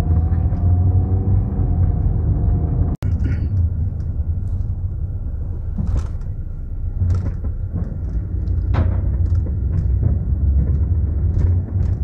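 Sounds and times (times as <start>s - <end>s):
road rumble inside car: 0.0s - 12.0s
short knocks and rattles: 7.0s - 12.0s.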